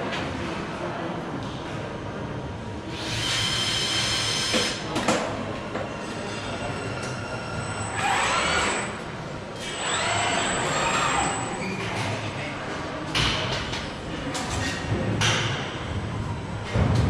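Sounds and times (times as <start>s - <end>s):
robot drive motors whining: 7.4s - 8.9s, 9.6s - 11.4s.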